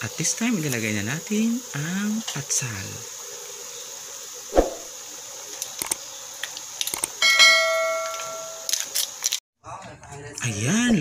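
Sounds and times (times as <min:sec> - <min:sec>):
notification bell chime: 0:07.2 - 0:08.7.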